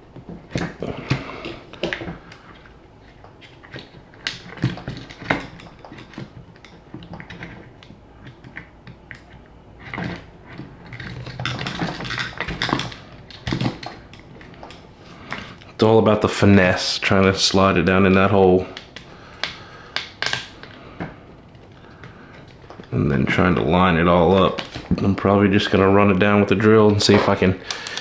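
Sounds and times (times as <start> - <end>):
hard plastic parts clicking: 0.1 - 15.6, 26.9 - 28.0
plastic parts rubbing and rattling: 0.1 - 15.8, 16.8 - 28.0.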